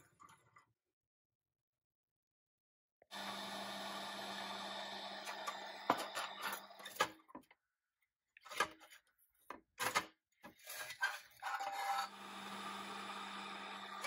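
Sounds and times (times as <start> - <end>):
steel axle scraping metal: 10.6 - 12.2.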